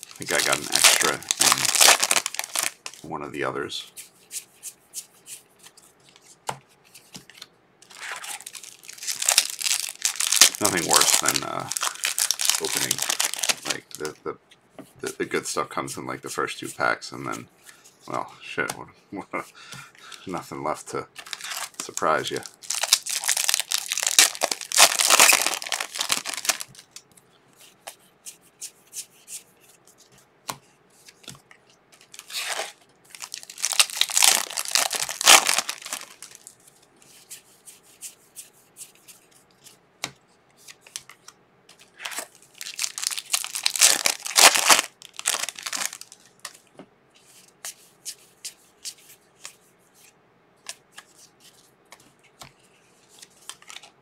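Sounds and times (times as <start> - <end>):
foil wrappers tearing and crinkling: 0.0 - 3.0, 7.9 - 14.1, 21.2 - 27.0, 32.1 - 36.5, 42.0 - 46.6.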